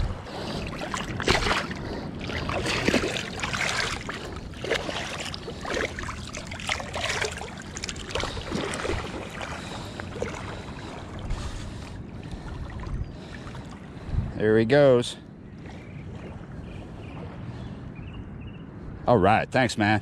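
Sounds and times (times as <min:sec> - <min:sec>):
river water splashing: 0:00.0 - 0:14.0
person wading in water: 0:00.0 - 0:14.1, 0:15.5 - 0:17.9.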